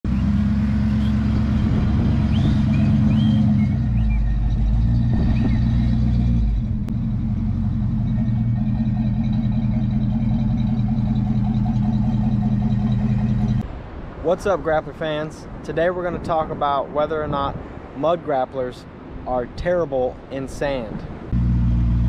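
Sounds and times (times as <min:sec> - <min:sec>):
truck engine running: 0:00.0 - 0:13.6, 0:21.4 - 0:22.0.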